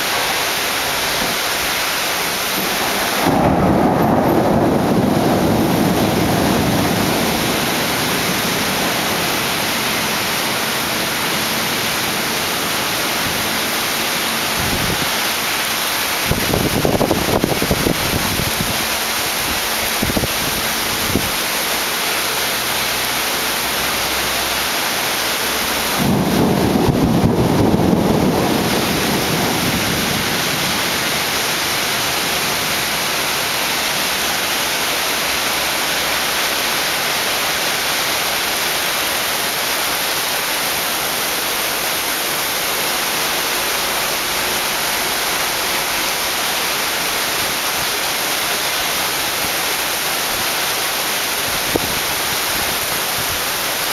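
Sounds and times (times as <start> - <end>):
heavy rain: 0.0 - 53.9
thunder rumbling: 1.0 - 18.8, 25.7 - 34.2.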